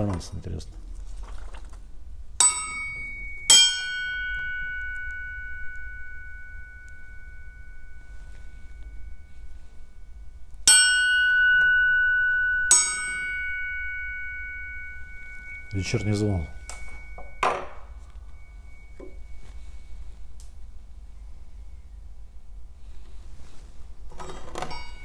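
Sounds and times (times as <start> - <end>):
axe heads ringing when struck: 2.4 - 9.2, 10.6 - 19.4, 24.6 - 25.0.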